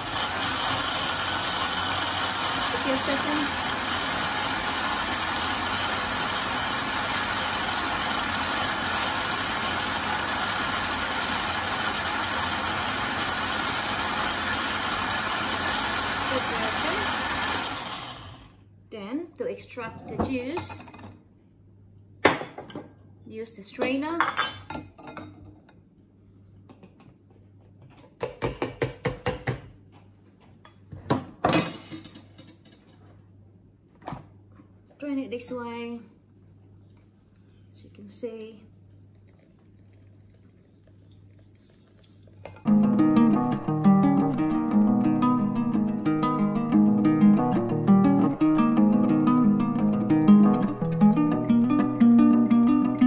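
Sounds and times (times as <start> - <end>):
blender running: 0.0 - 18.6.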